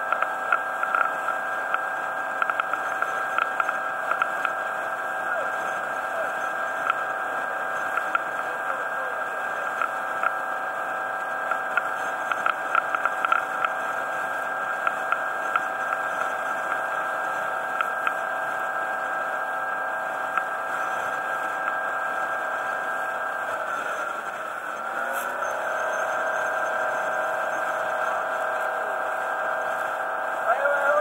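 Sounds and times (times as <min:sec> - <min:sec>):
boat motor whining: 0:09.7 - 0:31.0.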